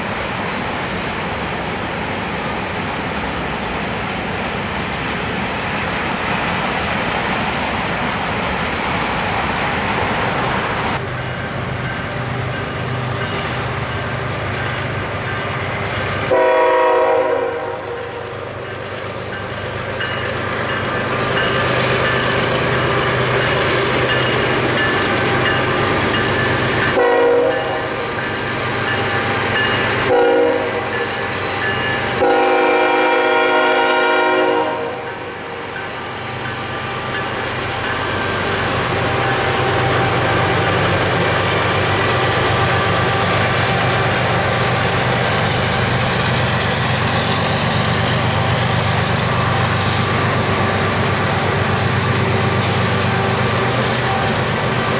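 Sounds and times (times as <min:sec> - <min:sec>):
diesel locomotive rumble: 0:00.0 - 0:54.9
train air horn blasts: 0:16.3 - 0:18.5, 0:27.0 - 0:27.9, 0:30.0 - 0:31.6, 0:32.2 - 0:35.3
freight cars rolling on rails: 0:18.1 - 0:54.9.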